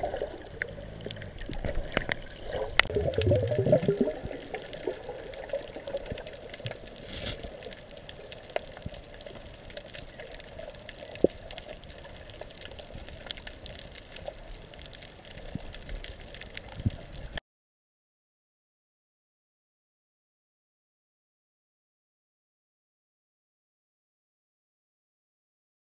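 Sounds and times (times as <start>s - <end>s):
underwater bubbling rush: 0.0s - 17.4s
underwater hiss: 6.9s - 7.7s.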